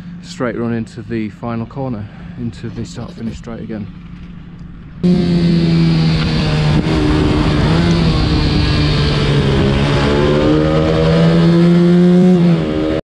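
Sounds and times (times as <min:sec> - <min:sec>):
minibike engine revving high: 0:05.0 - 0:13.0.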